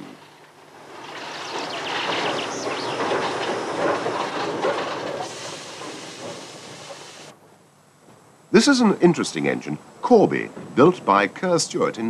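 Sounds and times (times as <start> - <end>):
train wheels clattering over rail joints: 0.0 - 7.3
steam hissing: 0.0 - 7.4.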